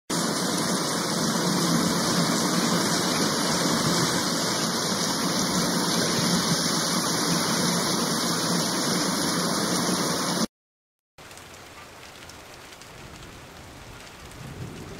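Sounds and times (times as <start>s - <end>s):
fountain water splashing into pond: 0.1s - 10.5s.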